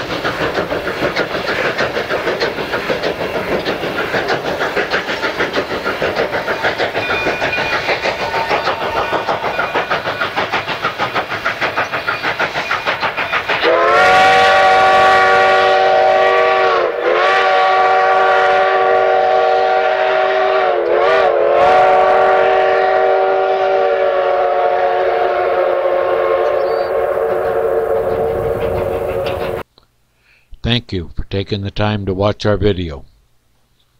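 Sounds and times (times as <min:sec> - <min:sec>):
steam locomotive chuffing: 0:00.0 - 0:29.7
steam chime whistle blast: 0:12.1 - 0:28.6.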